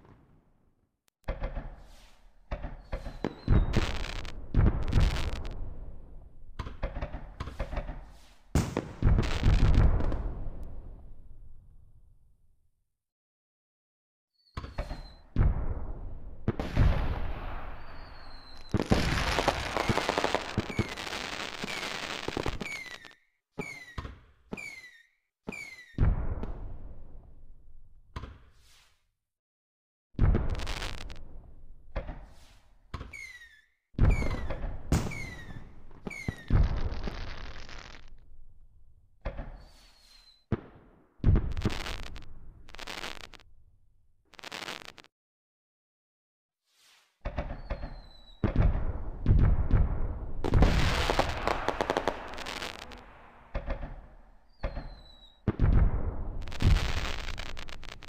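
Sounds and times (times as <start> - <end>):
fireworks booming and crackling: 1.3 - 11.1, 14.7 - 23.8, 30.2 - 31.4, 34.0 - 38.2, 39.3 - 43.4, 44.3 - 45.1, 47.3 - 58.0
firework falling whistle: 2.8 - 4.4, 14.4 - 15.3, 17.7 - 24.0, 24.6 - 26.0, 33.1 - 38.1, 39.5 - 40.5, 47.4 - 48.5, 50.5 - 55.5.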